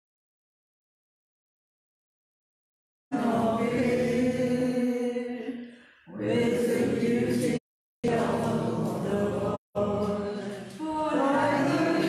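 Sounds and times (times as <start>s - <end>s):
congregation singing a hymn: 3.2s - 5.4s, 6.1s - 12.0s.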